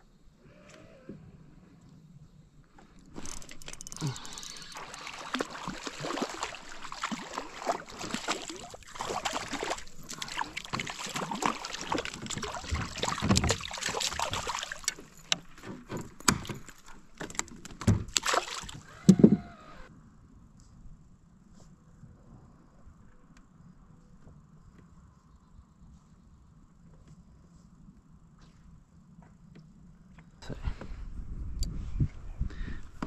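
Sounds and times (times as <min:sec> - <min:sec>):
fish splashing at the surface: 0:03.2 - 0:15.4, 0:18.1 - 0:18.9.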